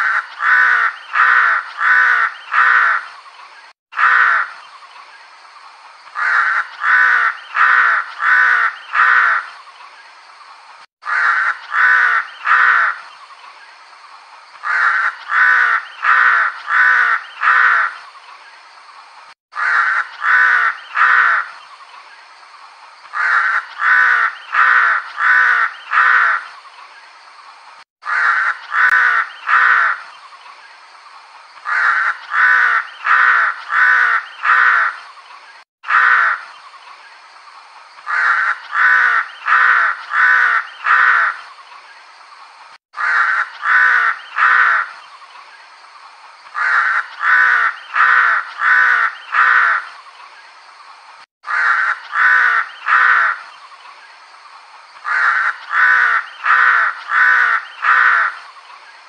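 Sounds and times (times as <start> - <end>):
crow cawing: 0.0 - 3.1, 4.0 - 4.6, 6.2 - 9.5, 11.0 - 13.0, 14.6 - 18.0, 19.5 - 21.5, 23.1 - 26.4, 28.0 - 30.0, 31.6 - 35.0, 35.8 - 36.5, 38.1 - 41.4, 43.0 - 44.9, 46.6 - 49.9, 51.4 - 53.4, 55.0 - 58.4
steady background hiss: 0.0 - 59.0.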